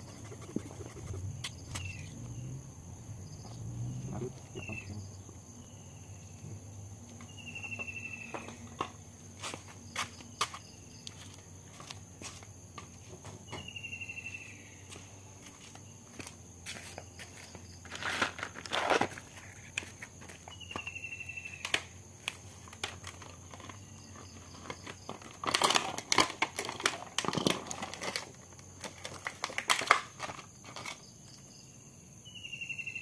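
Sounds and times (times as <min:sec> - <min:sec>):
small animal chirping trills: 0:00.0 - 0:02.3
footsteps on concrete: 0:07.0 - 0:20.9.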